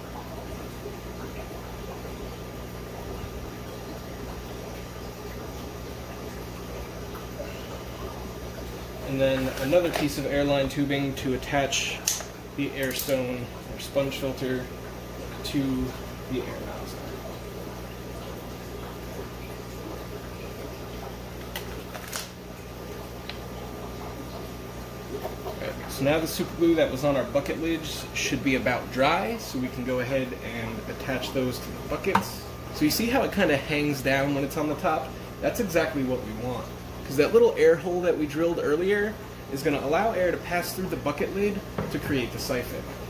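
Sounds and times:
low electrical hum: 0.0s - 43.0s
plastic tubing clicks: 12.0s - 13.2s.

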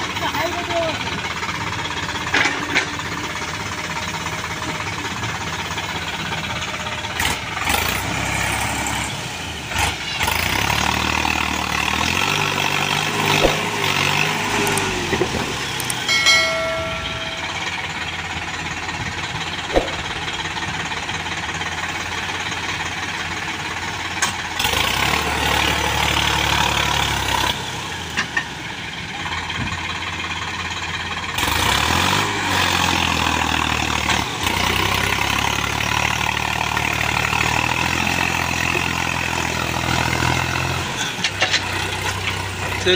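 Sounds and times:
diesel engines under load: 0.0s - 42.9s
high steady tone: 16.0s - 18.2s.

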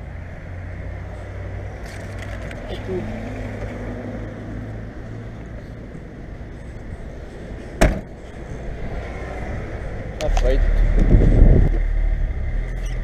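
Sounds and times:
steady low rumble: 4.7s - 13.0s
car boot lid slamming shut: 7.8s - 8.1s.

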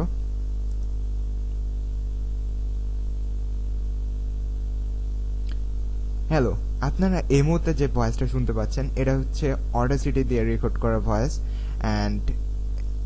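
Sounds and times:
steady electrical hum: 0.0s - 13.0s
small click: 0.6s - 0.9s, 5.4s - 5.7s
faint hiss: 6.3s - 12.4s.

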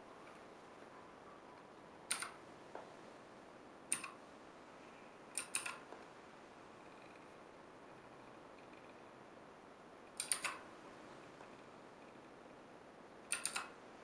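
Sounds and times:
mechanical keyboard switch clicks: 2.1s - 2.4s, 3.9s - 4.2s, 5.4s - 5.8s, 10.2s - 10.6s, 13.3s - 13.7s.

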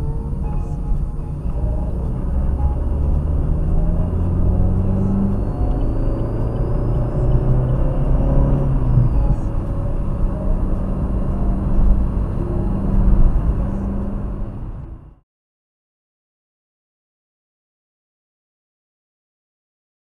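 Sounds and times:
car engine hum: 0.0s - 15.2s
road noise inside car: 0.0s - 15.2s.

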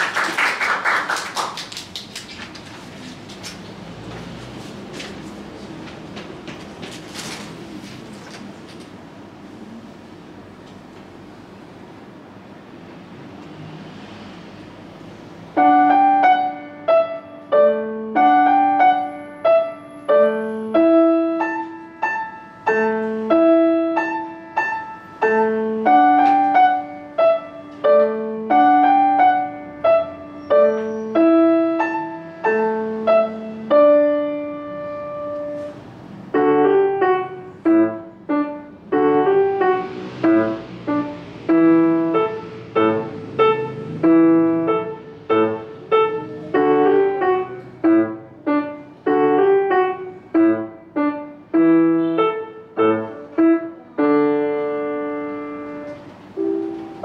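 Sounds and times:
blues piano piece: 15.0s - 57.0s.

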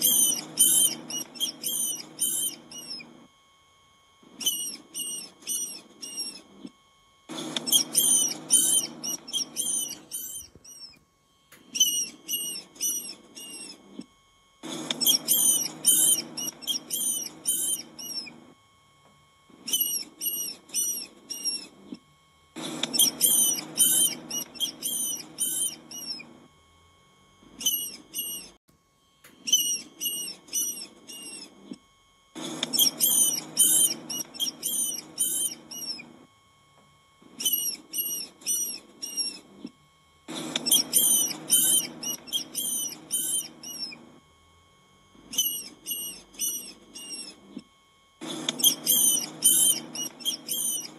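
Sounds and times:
rodent squeaking: 0.0s - 3.2s, 4.3s - 6.6s, 7.3s - 11.0s, 11.6s - 14.0s, 14.6s - 18.4s, 19.6s - 21.9s, 22.6s - 26.3s, 27.6s - 28.6s, 29.4s - 31.8s, 32.4s - 36.1s, 37.4s - 39.7s, 40.3s - 44.1s, 45.2s - 47.5s, 48.2s - 50.9s.

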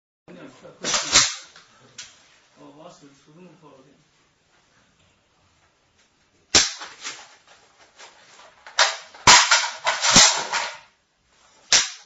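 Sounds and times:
rifle shots echoing in a room: 0.8s - 1.6s, 6.5s - 7.1s, 8.7s - 11.0s, 11.7s - 12.0s.

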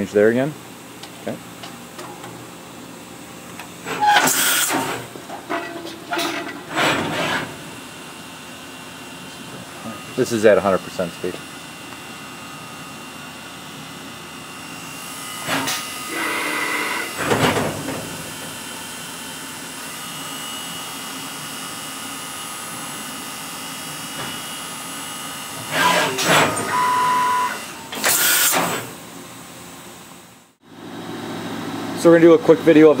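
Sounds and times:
machine humming: 0.7s - 29.2s
brief machine whines: 15.3s - 17.2s, 25.6s - 28.9s.

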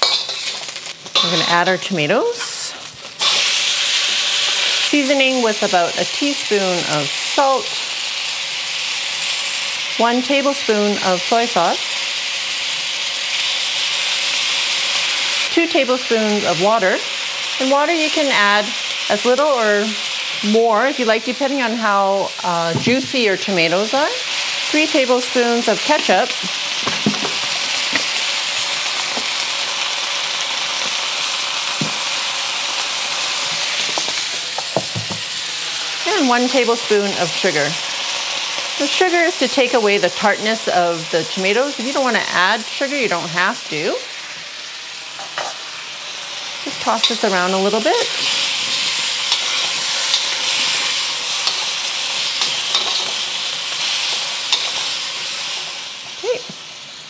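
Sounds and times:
metal spatula scraping wok: 0.0s - 4.9s, 45.1s - 45.7s, 46.7s - 55.8s
tomatoes sizzling in a wok: 0.0s - 57.0s.

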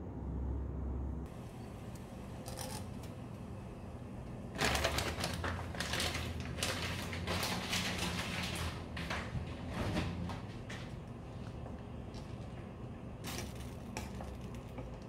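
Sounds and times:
water boiling and bubbling: 10.6s - 15.0s.

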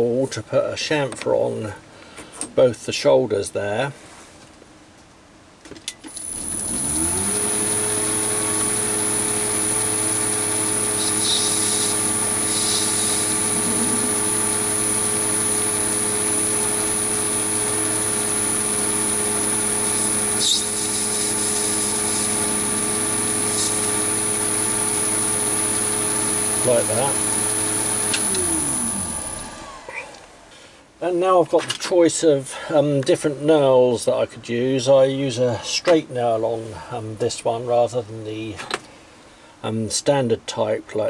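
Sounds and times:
faint metal cutting: 6.2s - 30.0s
lathe motor humming: 6.2s - 30.5s.

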